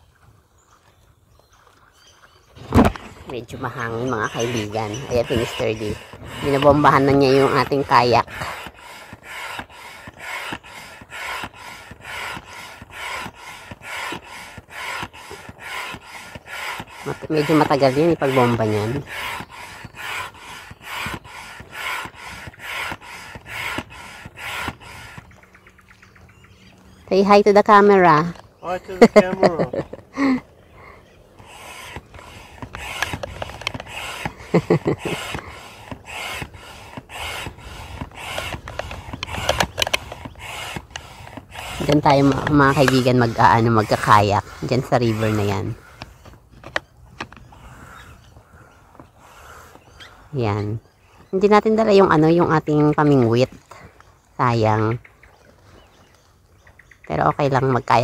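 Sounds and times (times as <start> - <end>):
hand pump air whooshes: 2.6 - 25.7, 30.9 - 50.2.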